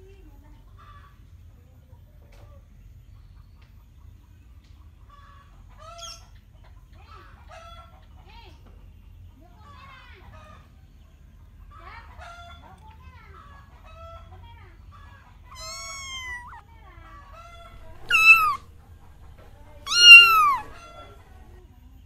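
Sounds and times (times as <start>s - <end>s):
cat meowing: 15.5s - 16.6s, 17.8s - 21.2s.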